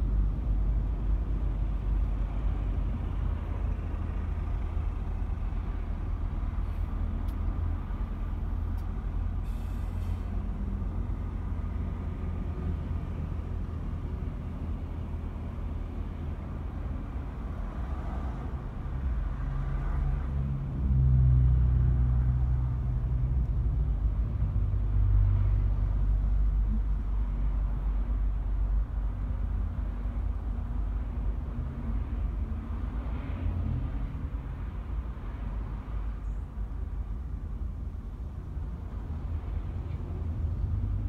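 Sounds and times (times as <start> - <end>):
road traffic rumble: 0.0 - 41.0.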